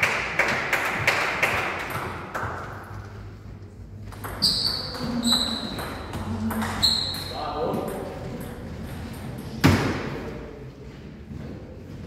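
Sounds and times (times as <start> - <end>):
table tennis ball bouncing: 4.0 - 10.0.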